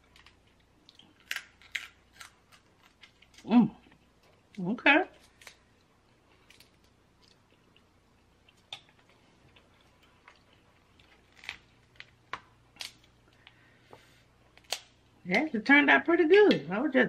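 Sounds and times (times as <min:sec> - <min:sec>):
crab shells clicking and cracking: 0:00.0 - 0:03.5, 0:05.2 - 0:05.7, 0:08.5 - 0:09.6, 0:10.2 - 0:13.6, 0:14.5 - 0:15.0.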